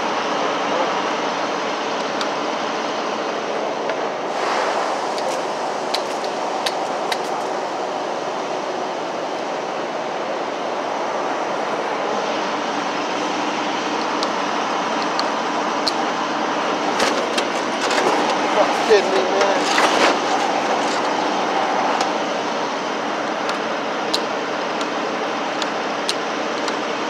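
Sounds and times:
diesel truck engine idling: 0:00.0 - 0:27.0
sharp clicks and knocks: 0:16.9 - 0:18.4.

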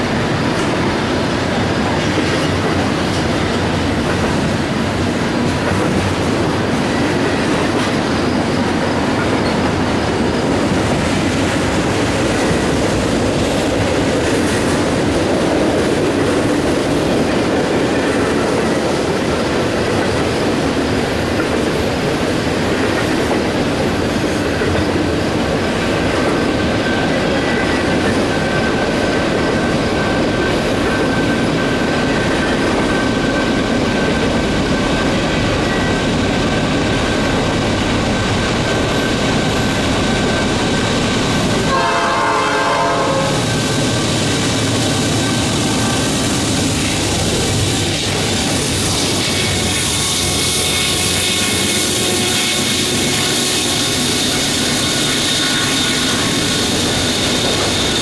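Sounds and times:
freight train wheels rumbling on rail: 0:00.0 - 0:58.0
high wheel squeal: 0:48.5 - 0:58.0.

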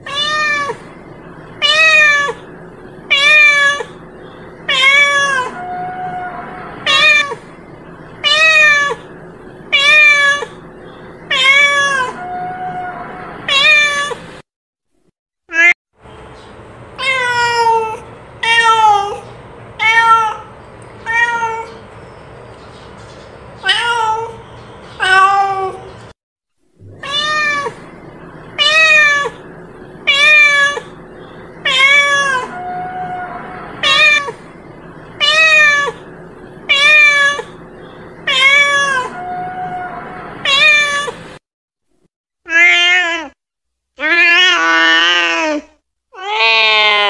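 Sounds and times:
cat meowing: 0:00.0 - 0:00.8, 0:01.6 - 0:02.4, 0:03.1 - 0:04.0, 0:04.7 - 0:07.4, 0:08.2 - 0:09.1, 0:09.7 - 0:10.6, 0:11.3 - 0:14.2, 0:17.0 - 0:19.2, 0:19.8 - 0:21.8, 0:23.6 - 0:24.4, 0:25.0 - 0:25.9, 0:26.9 - 0:27.9, 0:28.6 - 0:29.4, 0:30.0 - 0:31.0, 0:31.6 - 0:34.5, 0:35.2 - 0:36.1, 0:36.7 - 0:37.6, 0:38.2 - 0:41.2, 0:42.5 - 0:43.4, 0:44.0 - 0:47.0.

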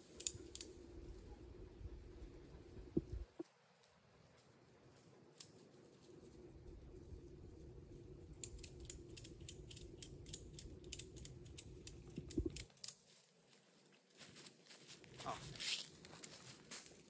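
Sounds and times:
metal strap buckle clicking: 0:08.4 - 0:13.0.

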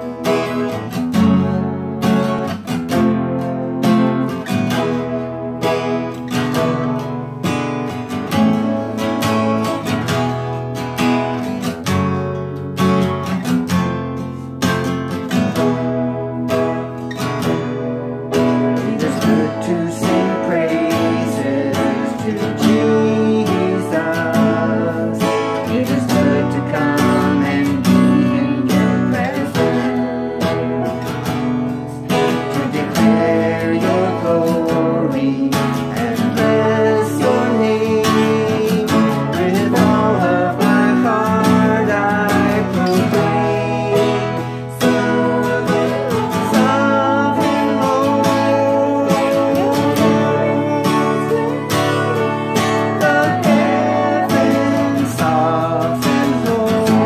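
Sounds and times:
man singing: 0:00.0 - 0:01.6, 0:15.6 - 0:57.0
acoustic guitar strummed chords: 0:00.0 - 0:57.0.

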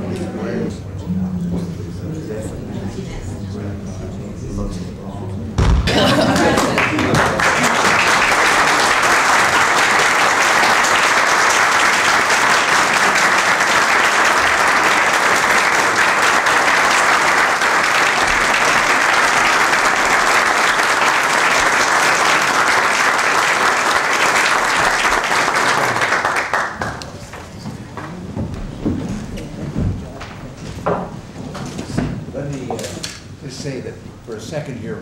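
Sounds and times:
people clapping: 0:05.8 - 0:28.1.

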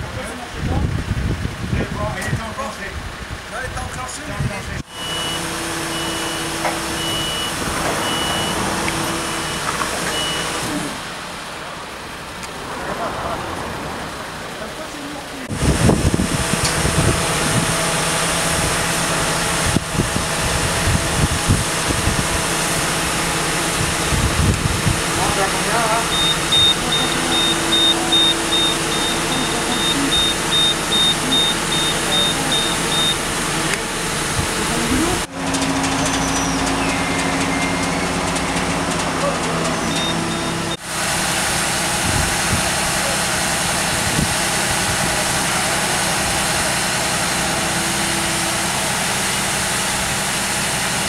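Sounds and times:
truck engine running: 0:00.0 - 0:51.0
high warning beeps: 0:04.9 - 0:10.6, 0:25.6 - 0:33.4, 0:39.8 - 0:40.8.

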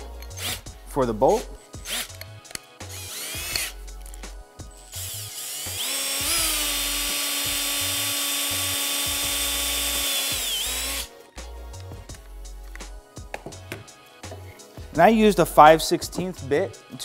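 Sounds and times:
cordless drill whine: 0:02.8 - 0:03.8, 0:04.8 - 0:11.1.

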